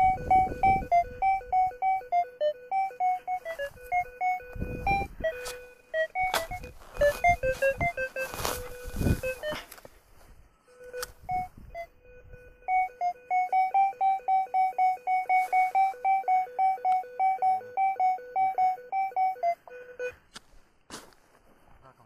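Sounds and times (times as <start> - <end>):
metal detector two-tone beeps: 0.0 - 9.7, 10.7 - 20.2.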